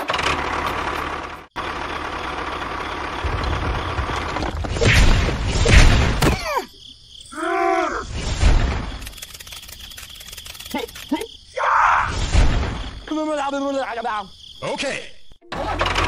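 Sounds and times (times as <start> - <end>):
tractor engine rumbling: 0.0 - 5.0, 15.5 - 16.0.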